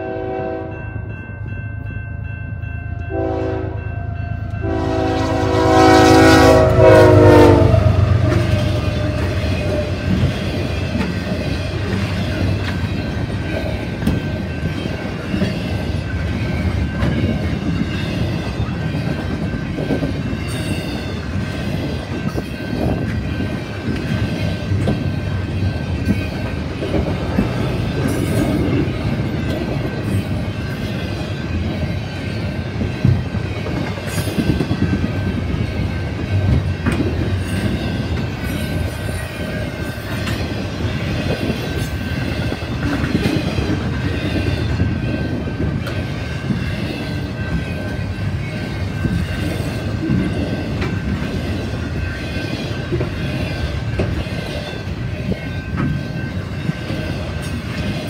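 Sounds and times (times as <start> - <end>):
locomotive horn blasts: 0.0 - 0.8, 3.1 - 3.9, 4.6 - 10.0
train wheels clicking over rail joints: 8.2 - 58.0.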